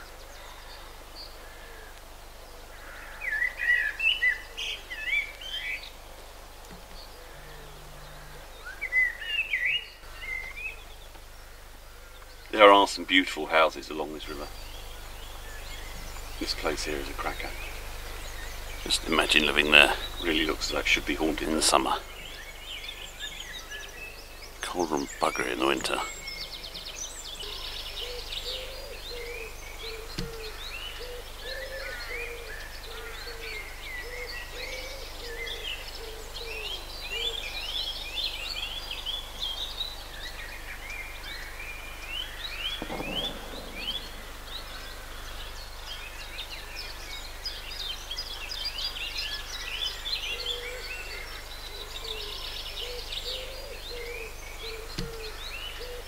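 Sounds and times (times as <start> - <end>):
songbirds singing and chirping: 0.0 - 56.0
low hooting call: 2.8 - 11.0, 11.9 - 37.6, 42.7 - 45.6.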